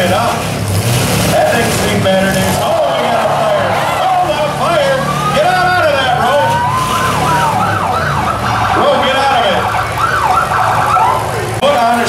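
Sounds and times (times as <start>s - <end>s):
car engines running: 0.0s - 12.0s
siren wailing: 2.7s - 11.6s.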